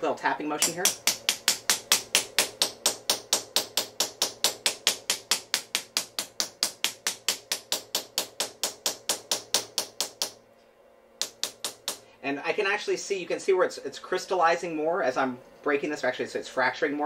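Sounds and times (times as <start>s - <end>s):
glass cutter tapping glass: 0.6s - 10.4s, 11.2s - 12.0s.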